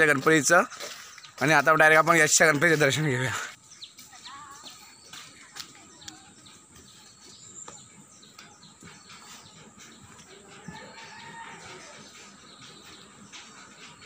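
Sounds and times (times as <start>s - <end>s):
footsteps: 0.0s - 14.0s
rooster crowing: 10.6s - 12.1s.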